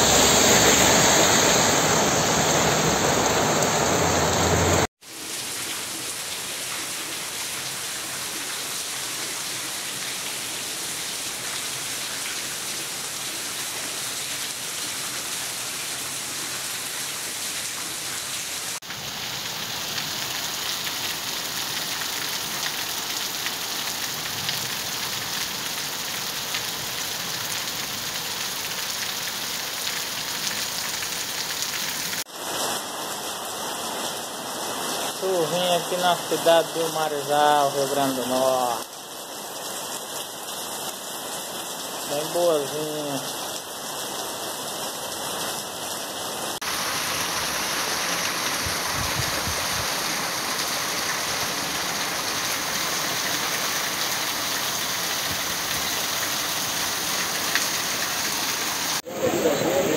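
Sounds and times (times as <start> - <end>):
heavy rain hissing: 0.0 - 6.4, 42.1 - 43.3, 46.5 - 59.9
car tyres on wet street: 0.0 - 36.8, 46.5 - 59.9.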